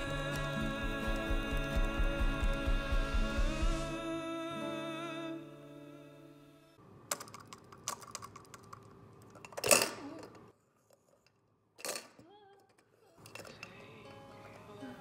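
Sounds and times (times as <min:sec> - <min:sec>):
background music: 0:00.0 - 0:06.8, 0:13.3 - 0:15.0
toy clattering over: 0:07.1 - 0:14.7.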